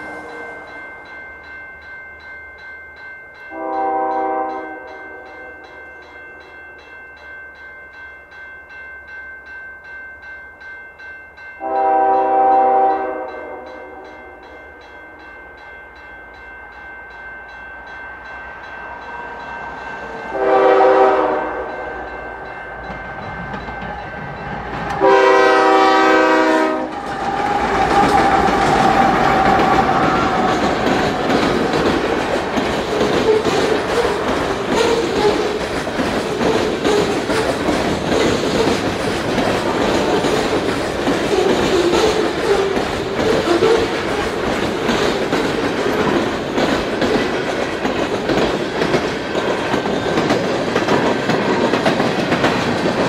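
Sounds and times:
crossing warning bell ringing: 0.0s - 53.0s
locomotive air horn blasts: 3.5s - 4.9s, 11.6s - 14.1s, 20.3s - 21.8s, 25.0s - 27.0s.

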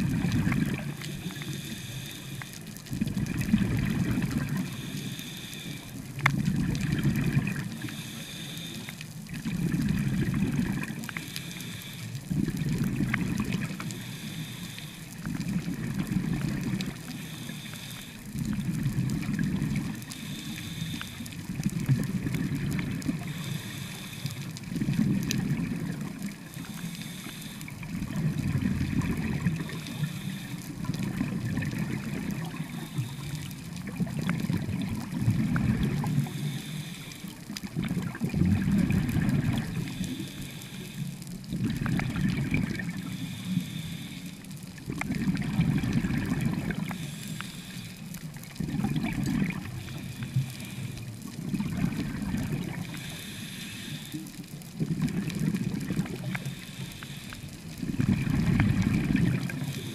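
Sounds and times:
exhaust bubbles bubbling: 0.0s - 1.2s, 2.9s - 4.7s, 6.1s - 7.8s, 9.3s - 11.1s, 12.3s - 13.9s, 15.2s - 17.1s, 18.3s - 20.1s, 21.3s - 23.4s, 24.5s - 26.5s, 27.7s - 29.9s, 30.7s - 32.8s, 33.7s - 36.3s, 37.6s - 40.2s, 41.5s - 43.0s, 44.8s - 47.0s, 48.4s - 49.9s, 51.4s - 53.0s, 54.7s - 56.4s, 57.8s - 59.9s.

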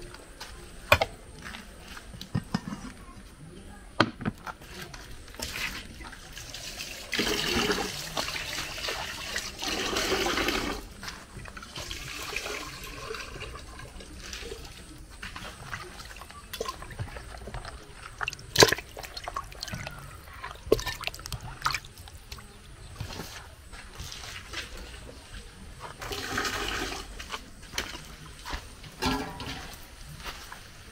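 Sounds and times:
water pouring: 5.3s - 22.5s, 26.0s - 28.4s
water trickling: 11.4s - 22.7s.

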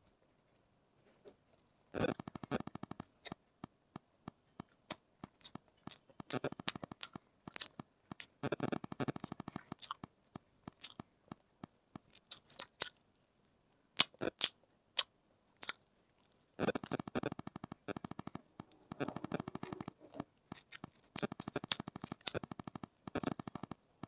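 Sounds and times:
person chewing food: 4.9s - 10.1s, 10.7s - 11.0s, 12.0s - 13.0s, 14.0s - 23.8s
wet mouth clicks and smacks: 5.4s - 8.3s, 10.7s - 11.0s, 12.1s - 13.0s, 14.0s - 15.8s, 20.5s - 22.4s.

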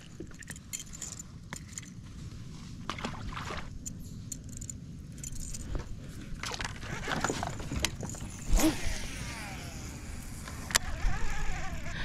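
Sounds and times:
metal blade rattling and clicking: 3.8s - 5.8s.

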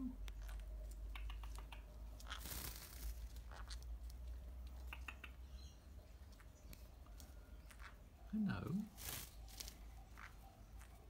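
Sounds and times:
birds rustling on a perch: 2.0s - 4.8s, 8.7s - 11.0s.

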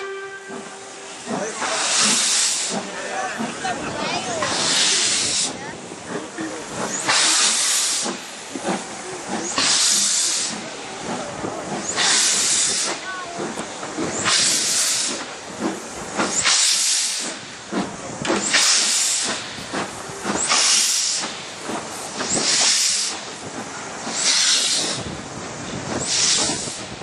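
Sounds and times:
steam locomotive chuffing: 0.0s - 27.0s.

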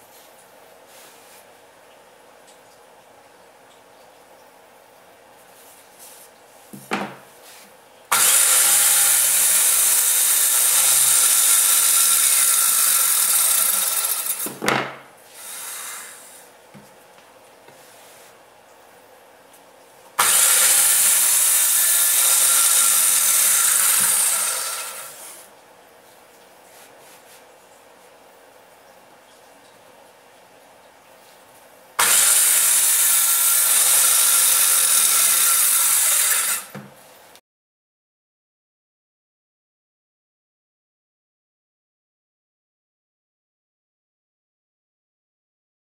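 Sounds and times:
circular saw cutting board: 6.7s - 16.5s, 20.2s - 25.5s, 32.0s - 36.9s.

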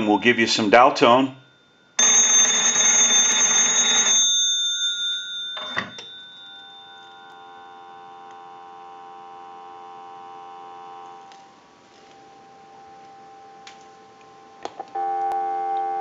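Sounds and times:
telephone bells ringing: 0.0s - 10.8s
dial tone: 7.0s - 11.3s, 15.0s - 16.0s.

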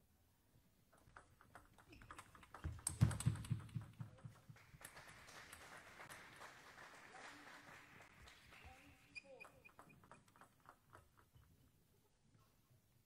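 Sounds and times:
table tennis ball clicking off bats: 0.9s - 5.0s, 9.2s - 11.4s.

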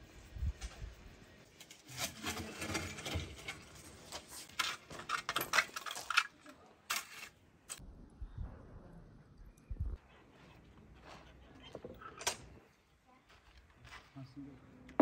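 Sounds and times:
shovel scraping charcoal: 1.5s - 6.1s, 6.8s - 7.8s.

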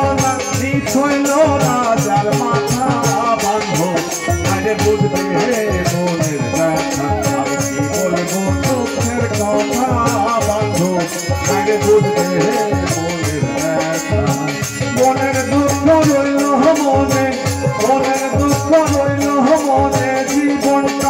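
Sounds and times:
amplified folk melody: 0.0s - 21.0s
hand percussion: 0.0s - 21.0s.

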